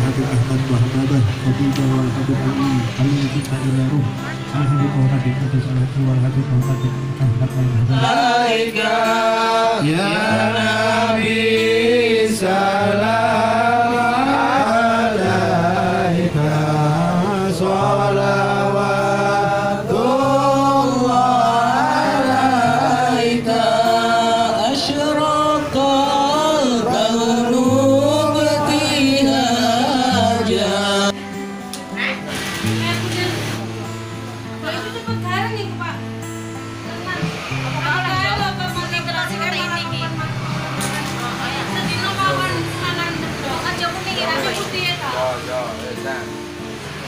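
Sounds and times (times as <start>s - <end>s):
men chanting devotional verses: 0.0s - 31.4s.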